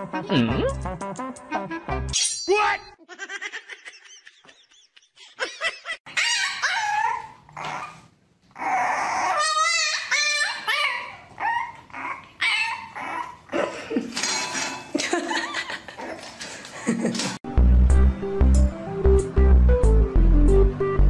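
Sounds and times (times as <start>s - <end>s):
puppy whining and yipping: 6.1s - 13.5s
dogs whining and yipping: 6.1s - 13.6s.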